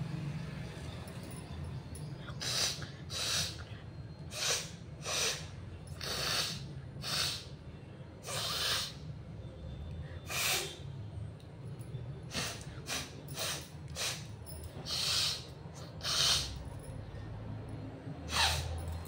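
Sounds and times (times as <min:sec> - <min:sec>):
woman sniffing and snorting: 0:02.3 - 0:03.7, 0:04.3 - 0:07.5, 0:08.2 - 0:09.0, 0:10.2 - 0:10.8, 0:12.3 - 0:16.7, 0:18.3 - 0:18.8.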